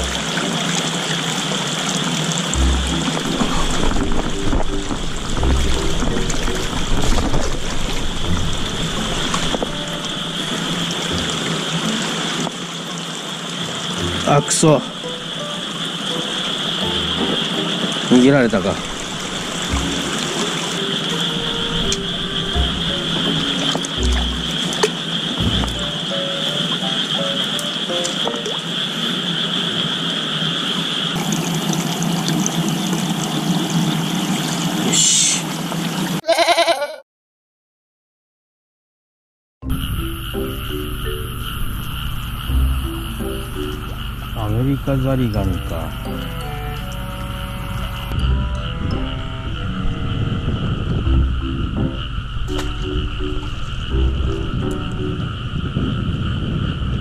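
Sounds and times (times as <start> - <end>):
water sloshing and splashing: 0.0 - 29.6, 31.1 - 34.9
frogs calling: 0.0 - 36.9, 39.6 - 57.0
high-pitched chorus: 8.2 - 12.8, 13.8 - 29.8, 39.6 - 55.8.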